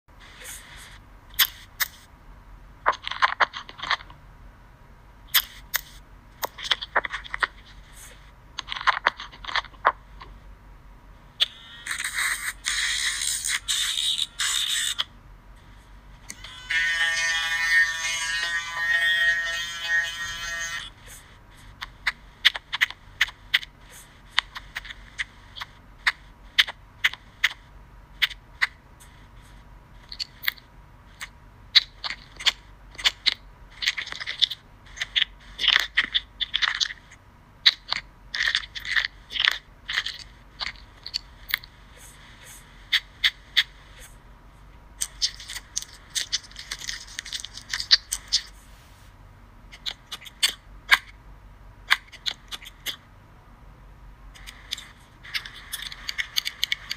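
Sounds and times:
crunching and scraping effects: 0:05.4 - 0:10.4, 0:45.0 - 0:49.0
electric nail drill whine: 0:16.3 - 0:20.9.

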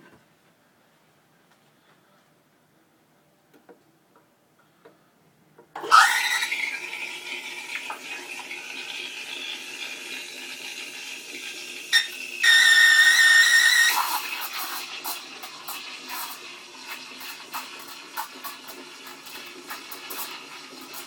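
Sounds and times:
steam wand frothing milk: 0:05.8 - 0:21.0
high squeal: 0:12.0 - 0:14.1.

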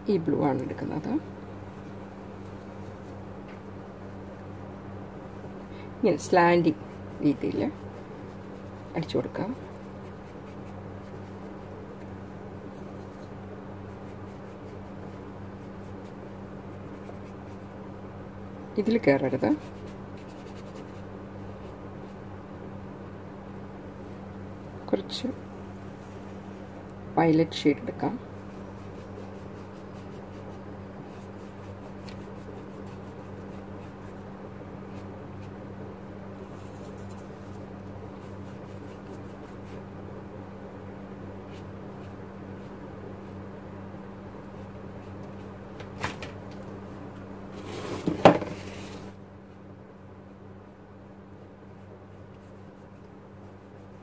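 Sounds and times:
steady low hum: 0:00.0 - 0:54.0
paintbrush stroking paper: 0:01.8 - 0:03.3, 0:06.6 - 0:11.6, 0:12.6 - 0:17.8, 0:19.3 - 0:22.2, 0:25.5 - 0:26.8, 0:28.1 - 0:35.6, 0:36.3 - 0:39.9, 0:51.8 - 0:54.0.

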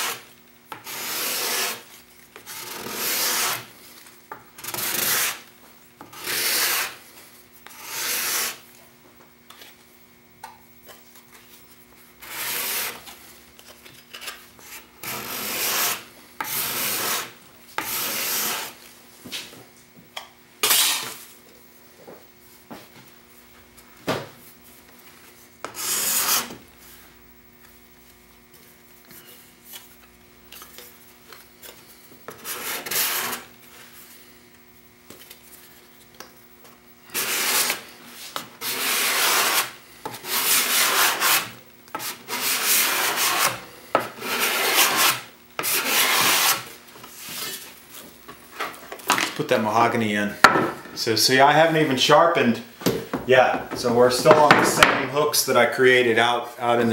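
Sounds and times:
scraper rasping across wood: 0:00.8 - 0:01.8, 0:02.4 - 0:03.7, 0:04.6 - 0:05.4, 0:06.1 - 0:07.0, 0:07.7 - 0:08.6, 0:12.2 - 0:13.0, 0:14.6 - 0:18.8, 0:25.6 - 0:26.5, 0:32.3 - 0:33.5, 0:37.1 - 0:37.8, 0:38.6 - 0:43.6, 0:44.2 - 0:46.7.

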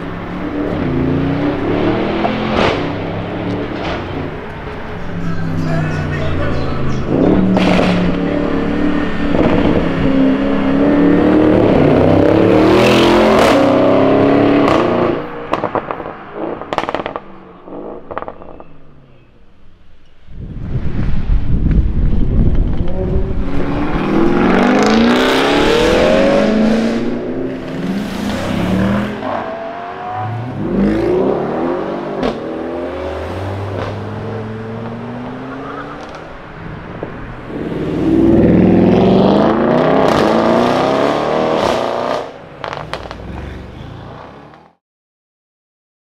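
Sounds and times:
car engines accelerating hard: 0:00.0 - 0:18.6, 0:21.6 - 0:44.8
exhaust cracks: 0:06.4 - 0:08.4, 0:41.6 - 0:43.6.

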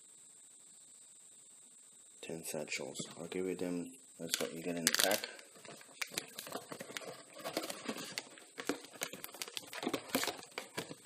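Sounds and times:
small clicks and scrapes: 0:04.2 - 0:11.0
packets and cardboard box rustling: 0:04.3 - 0:11.0.

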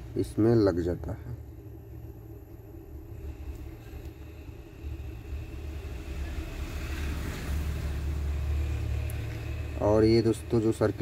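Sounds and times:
low background rumble: 0:00.0 - 0:11.0.

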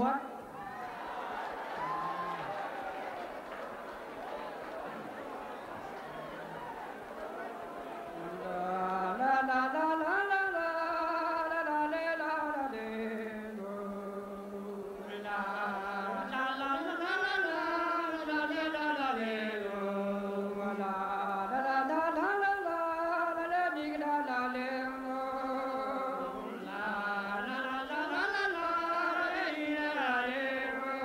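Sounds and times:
men singing a cappella: 0:08.2 - 0:31.0.

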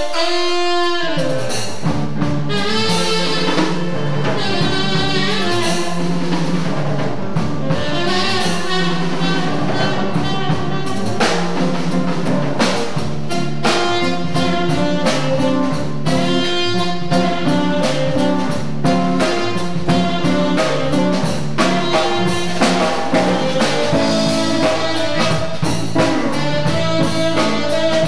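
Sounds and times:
bass guitar: 0:00.0 - 0:28.0
drum kit with cymbals and snare: 0:00.0 - 0:28.0
electric guitar: 0:00.0 - 0:28.0
saxophone lead: 0:00.0 - 0:28.0.

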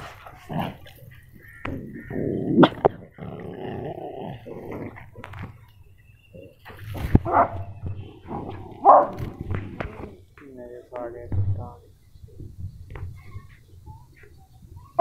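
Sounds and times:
dogs growling: 0:00.0 - 0:05.6
dog barks: 0:07.2 - 0:07.6, 0:08.8 - 0:09.2.

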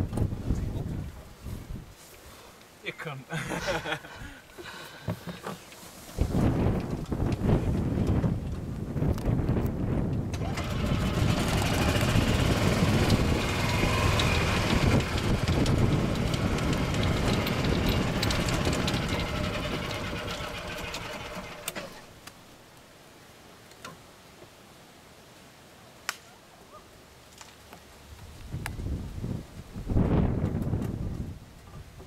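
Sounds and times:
wind on microphone: 0:00.0 - 0:02.0, 0:06.1 - 0:22.0, 0:28.2 - 0:32.0
cart rumbling over grass: 0:05.0 - 0:22.2
golf cart motor running: 0:10.3 - 0:22.1.

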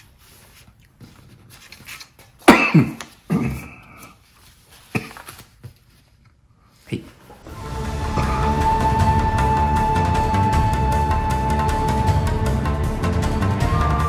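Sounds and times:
paper rustling and crinkling: 0:00.0 - 0:03.3, 0:03.9 - 0:07.5.

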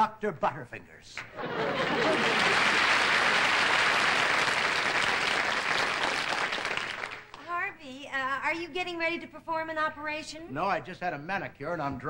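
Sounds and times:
audience applauding: 0:01.4 - 0:07.5.

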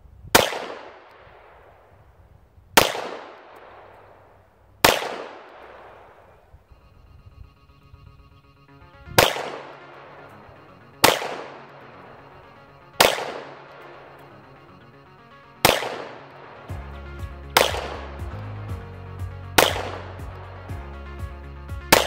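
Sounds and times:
pistol shots: 0:00.3 - 0:01.9, 0:02.8 - 0:06.4, 0:09.1 - 0:16.8, 0:17.6 - 0:18.4, 0:19.6 - 0:20.7
background music: 0:08.2 - 0:22.0
steady music beat: 0:08.6 - 0:22.0.

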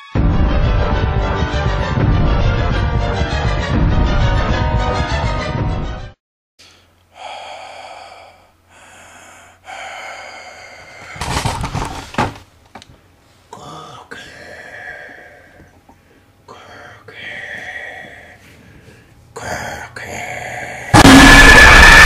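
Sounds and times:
raspy breathy gasps: 0:06.6 - 0:11.4.

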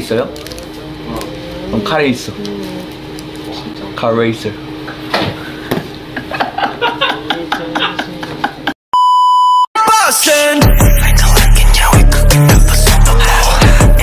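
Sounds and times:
music with heavy deep beat: 0:09.9 - 0:14.0.

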